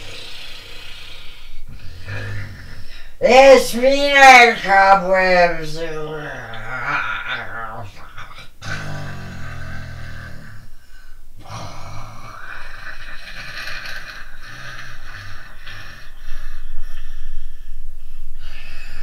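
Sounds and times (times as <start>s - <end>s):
loud snorting breaths: 0.0s - 3.2s.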